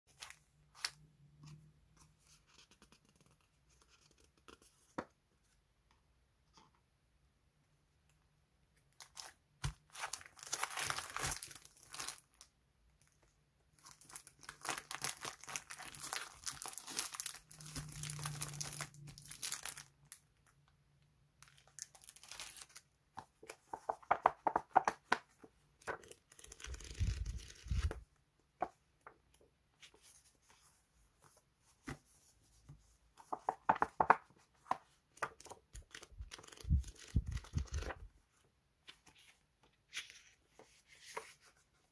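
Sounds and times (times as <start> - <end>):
plastic sleeves crinkling: 8.9 - 12.4, 13.0 - 20.6, 21.4 - 22.9, 25.8 - 28.0, 35.3 - 38.1.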